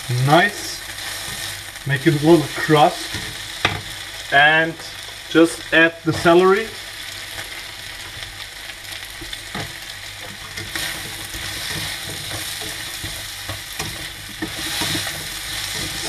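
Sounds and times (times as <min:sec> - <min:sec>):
food sizzling in hot oil: 0:00.0 - 0:16.0
spatula scraping and clicking on pan: 0:09.2 - 0:16.0.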